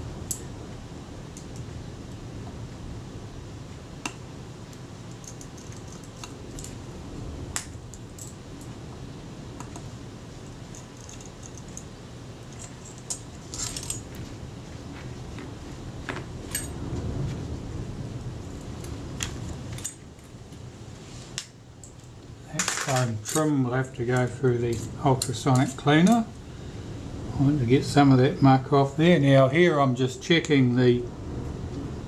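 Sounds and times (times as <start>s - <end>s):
small tools clicking on metal: 5.1s - 6.8s, 10.7s - 11.9s.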